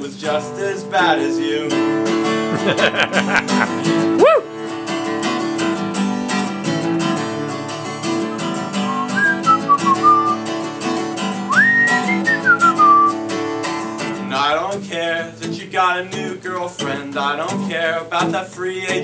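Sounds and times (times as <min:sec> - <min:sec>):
acoustic guitar strumming: 0:00.0 - 0:19.0
whistled melody: 0:08.1 - 0:10.5, 0:11.4 - 0:13.2.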